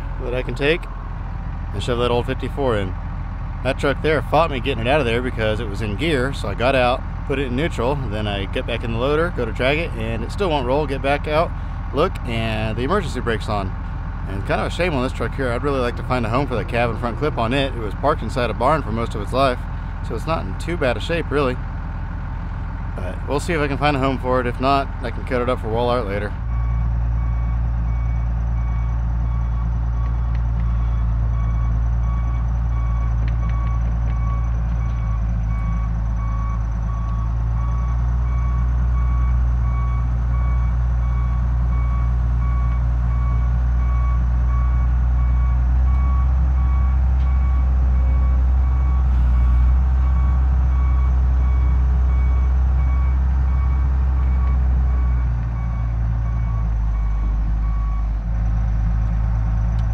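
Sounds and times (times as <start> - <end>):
diesel engine under load: 0.0 - 59.9
backup alarm beeping: 26.5 - 58.1.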